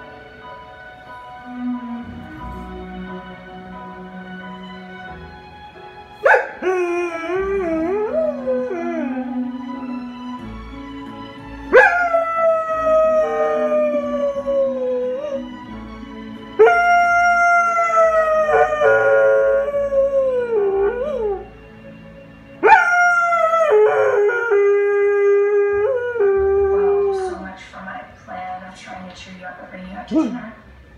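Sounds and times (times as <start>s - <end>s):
faint television music: 0.0s - 30.9s
dog howling: 6.2s - 10.0s, 11.7s - 15.6s, 16.6s - 21.6s, 22.6s - 27.5s.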